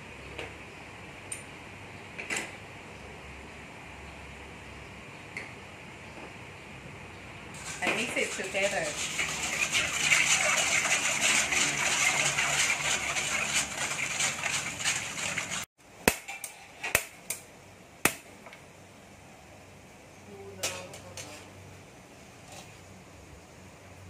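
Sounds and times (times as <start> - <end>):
metal spoon scraping steel bowl: 7.6 - 15.6.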